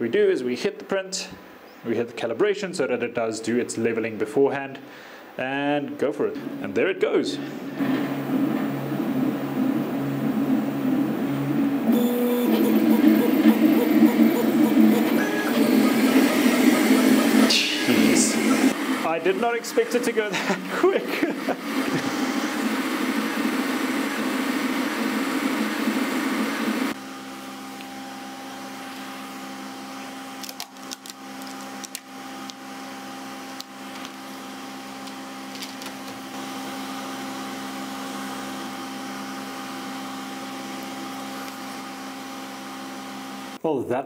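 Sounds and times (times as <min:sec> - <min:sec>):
steady hum: 0:04.1 - 0:30.4
printer fans whirring: 0:05.9 - 0:43.6.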